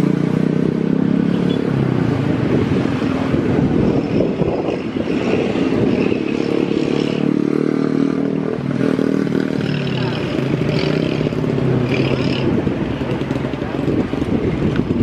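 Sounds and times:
motorcycle engines idling: 8.6 - 15.0.

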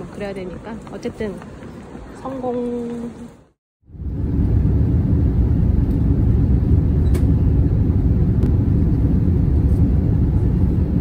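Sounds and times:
airliner cabin engine rumble: 3.9 - 11.0.

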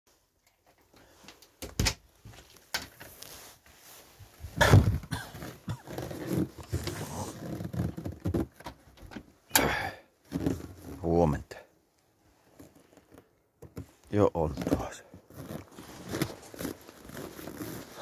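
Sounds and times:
small knocks and rustles: 12.4 - 17.6.

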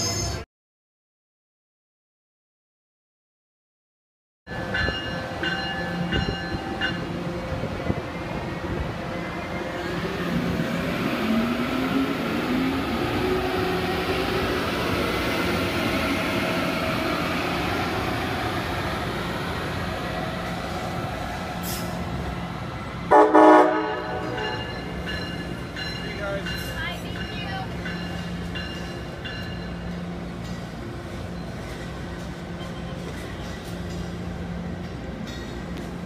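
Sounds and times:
electric locomotive whine: 4.5 - 36.0
train cars rumbling past: 4.5 - 36.0
train horn blast: 23.1 - 24.5.

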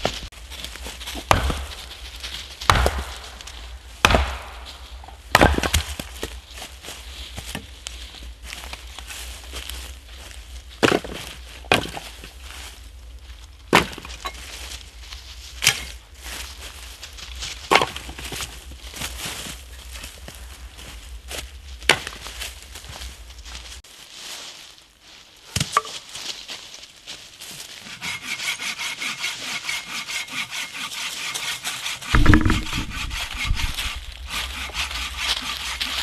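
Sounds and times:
axe splitting firewood: 1.2 - 2.0, 2.6 - 6.4, 10.8 - 12.2, 13.7 - 14.4, 17.7 - 18.5, 27.9 - 36.0.

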